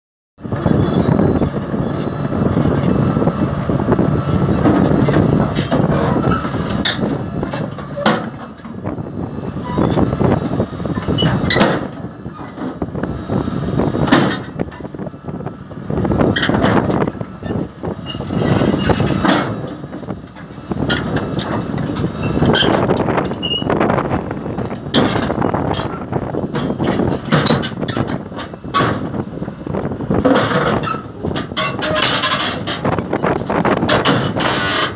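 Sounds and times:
diesel engine running under load: 0.4s - 34.9s
steel tracks clanking on ramps: 11.0s - 12.8s, 14.0s - 14.9s, 16.4s - 23.7s, 24.6s - 29.1s, 30.2s - 34.9s.

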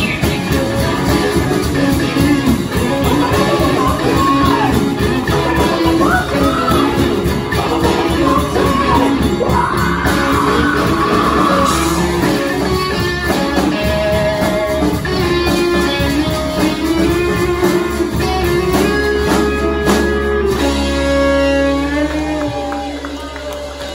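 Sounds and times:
lead singer singing: 0.0s - 14.3s
live rock band playing: 0.0s - 23.9s.

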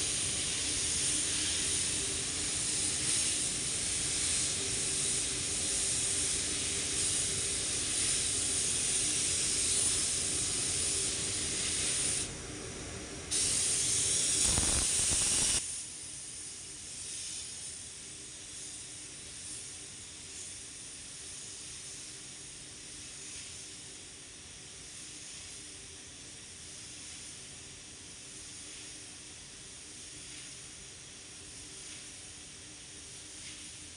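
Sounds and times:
paint spray gun hissing: 0.0s - 12.3s, 13.3s - 17.5s.

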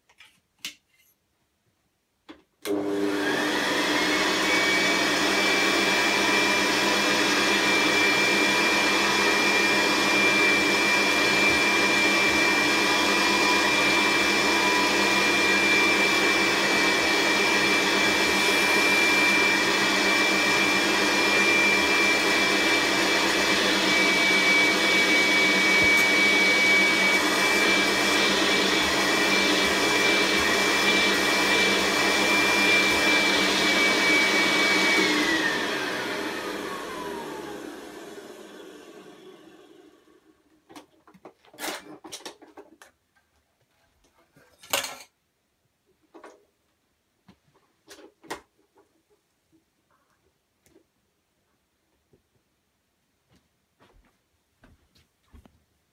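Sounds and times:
vacuum cleaner motor whine: 2.6s - 40.5s.

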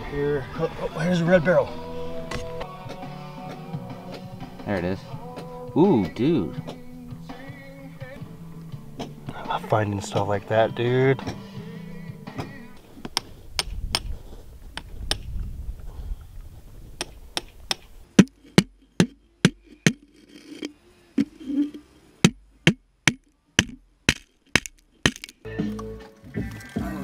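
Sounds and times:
hammer striking chisel into rock: 22.2s - 25.4s.

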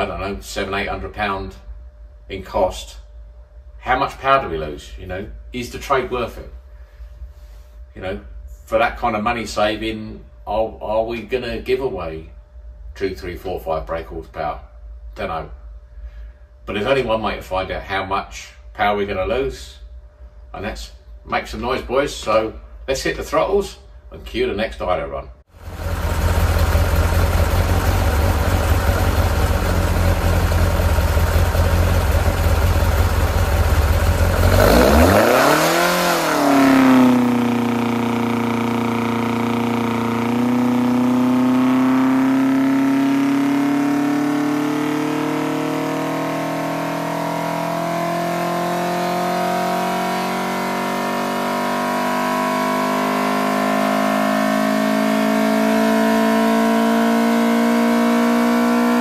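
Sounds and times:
race engine revving on dyno: 25.6s - 59.0s.

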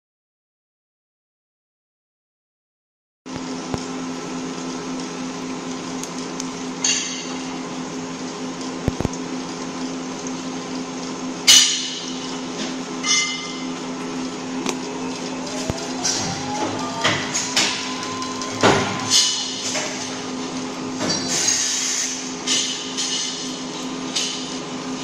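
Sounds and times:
welding arc buzzing hum: 3.3s - 25.0s.

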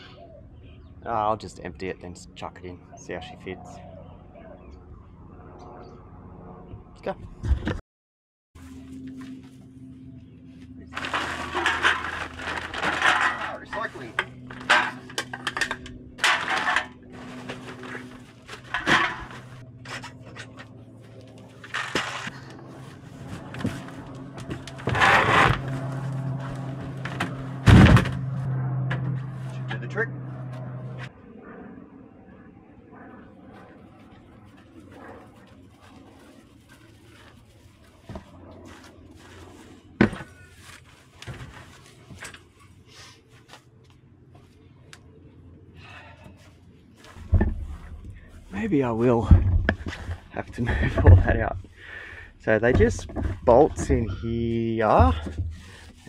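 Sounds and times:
steady low hum: 8.6s - 56.0s
hard objects clattering: 11.0s - 20.1s.

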